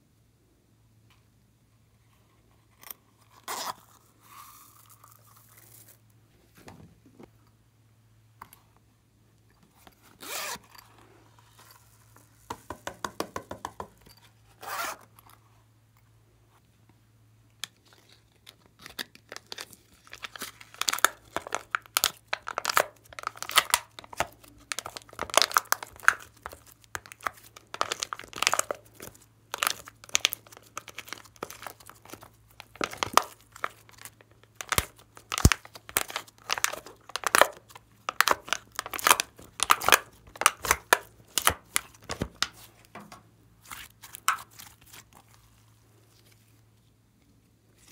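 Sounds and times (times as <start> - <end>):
handling noises on plastic: 17.6 - 47.9
sticky slime crackles and pops: 18.7 - 42.7.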